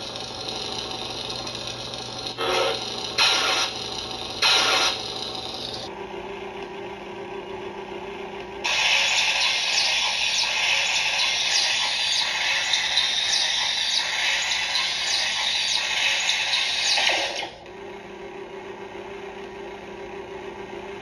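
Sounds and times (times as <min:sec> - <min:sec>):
toy lightsaber electronic hum: 0:00.0 - 0:05.9, 0:08.6 - 0:17.7.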